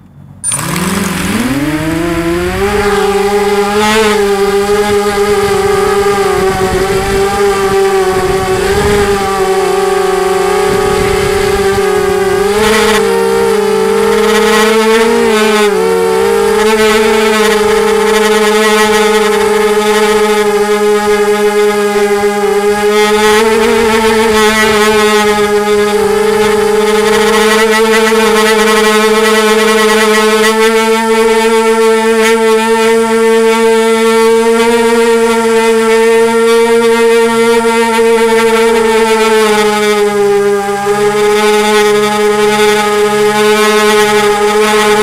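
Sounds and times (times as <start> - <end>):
quadcopter motors whining: 0.0 - 45.0.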